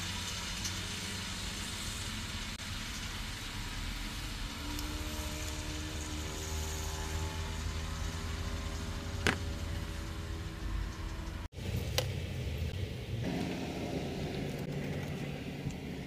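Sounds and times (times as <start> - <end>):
faint engine-like drone: 0.0 - 16.0
low hum: 1.8 - 16.0.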